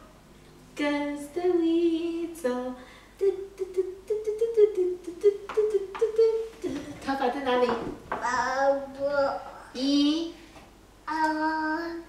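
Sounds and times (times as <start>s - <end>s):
toddler singing wordless tune: 8.2s - 10.4s, 11.0s - 12.0s.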